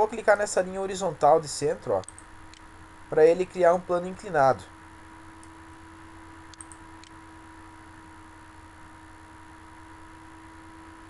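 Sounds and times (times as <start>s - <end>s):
electrical hum and hiss: 0.0s - 11.0s
computer mouse clicks: 2.0s - 2.6s, 6.5s - 7.2s.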